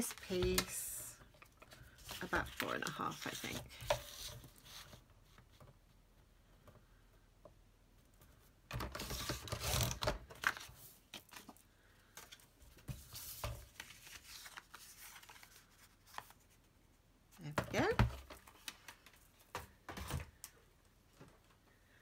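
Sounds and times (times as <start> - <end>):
paper rustling: 1.6 - 5.0, 8.8 - 16.6.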